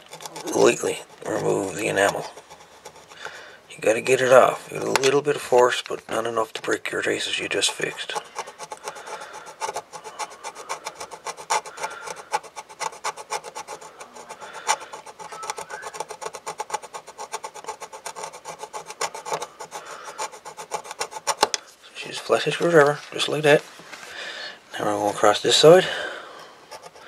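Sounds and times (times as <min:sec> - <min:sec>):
screwdriver scraping circuit board: 0:00.0 - 0:23.6, 0:26.7 - 0:27.0.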